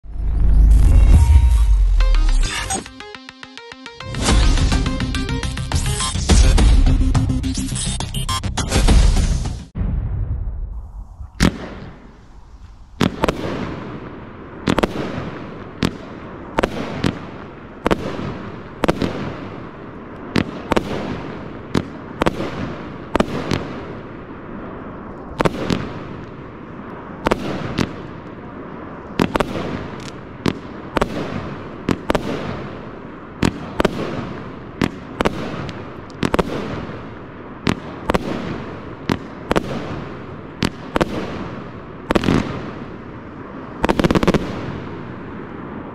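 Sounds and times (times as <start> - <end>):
firework bangs echoing: 9.7 - 45.9.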